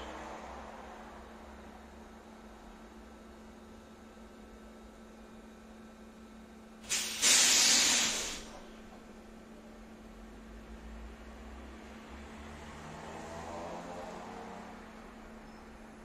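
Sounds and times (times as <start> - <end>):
compressed air hissing: 6.8 - 8.7
short air puff: 6.8 - 8.7.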